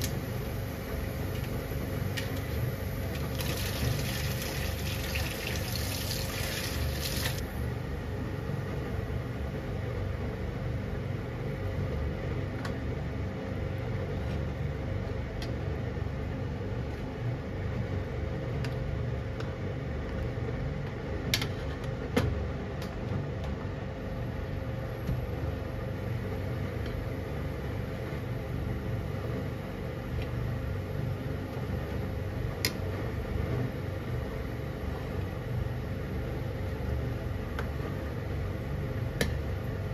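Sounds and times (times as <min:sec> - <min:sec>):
water boiling in a pan: 0:00.0 - 0:07.5.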